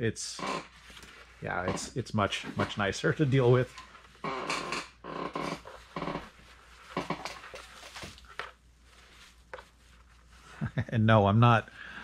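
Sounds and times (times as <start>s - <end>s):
faux fur rustling: 5.6s - 10.5s.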